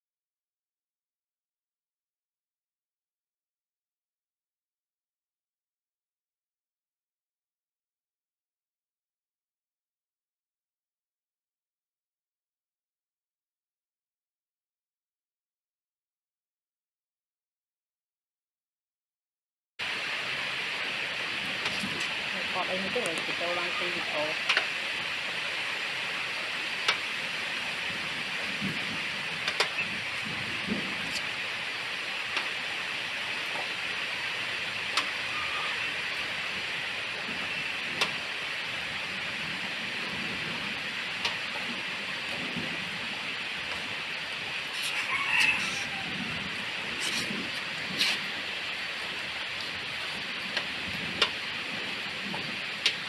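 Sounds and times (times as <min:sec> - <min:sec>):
rain hissing: 0:19.8 - 0:53.0.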